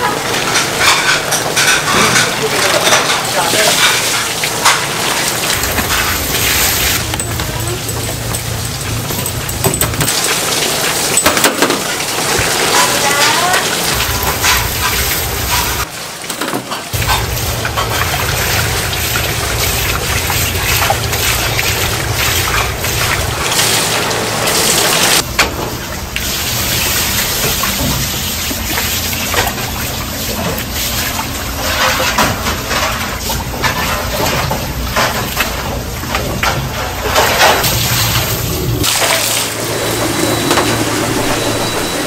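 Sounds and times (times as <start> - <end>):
hose water splashing into basin: 0.0 - 42.0.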